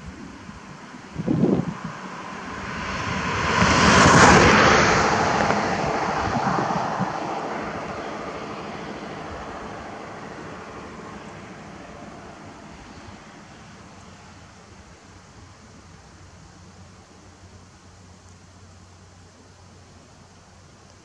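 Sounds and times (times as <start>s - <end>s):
vehicle passing: 0.9s - 14.8s.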